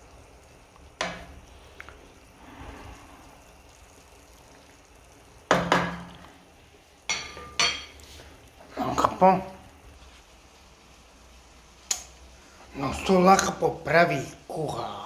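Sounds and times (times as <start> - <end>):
frying pan knocking on metal grate: 5.5 - 6.1.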